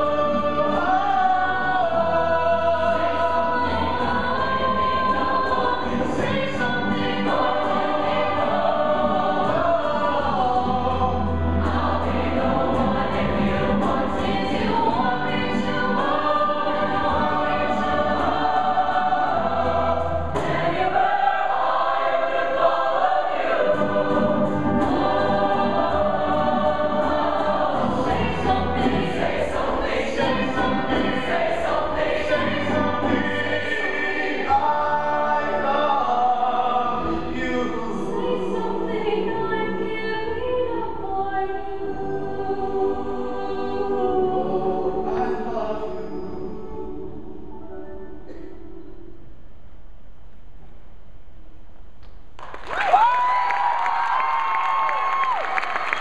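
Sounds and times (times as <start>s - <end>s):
choir singing in harmony: 0.0s - 49.2s.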